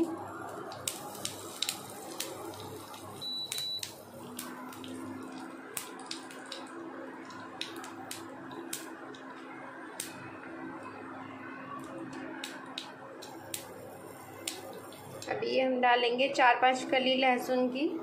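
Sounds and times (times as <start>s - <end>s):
hot oil sizzling in a frying pan: 0.0s - 15.3s
seeds crackling in sharp pops: 0.6s - 9.4s, 10.0s - 10.3s, 11.8s - 15.3s.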